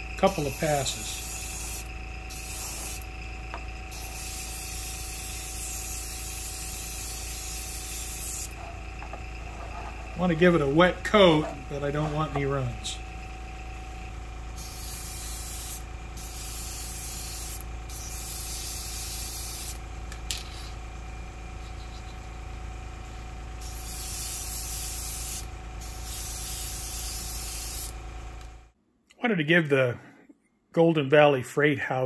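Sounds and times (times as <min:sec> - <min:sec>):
steady hum: 0:00.0 - 0:28.8
airbrush spraying hiss: 0:00.2 - 0:03.2, 0:03.9 - 0:10.8, 0:14.6 - 0:19.8, 0:23.6 - 0:28.0.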